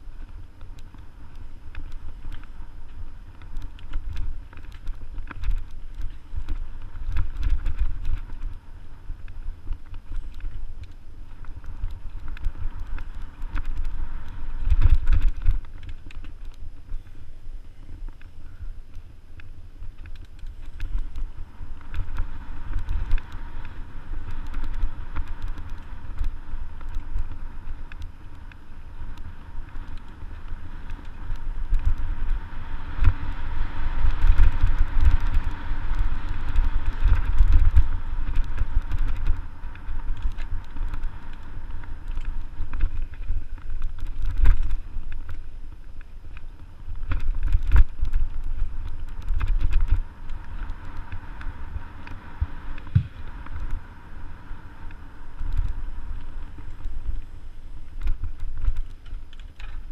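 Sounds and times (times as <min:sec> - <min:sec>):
bike clicking and rattling: 0:00.0 - 0:59.9
wind rumble on microphone: 0:00.0 - 0:59.9.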